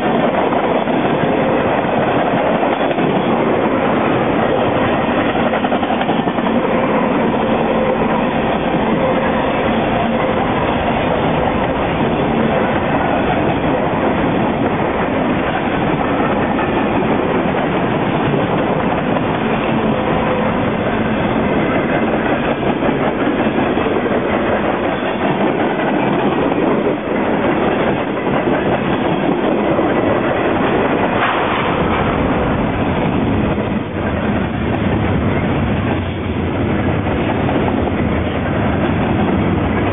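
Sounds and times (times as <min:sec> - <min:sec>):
train wheels rolling on rails: 0:00.0 - 0:39.9.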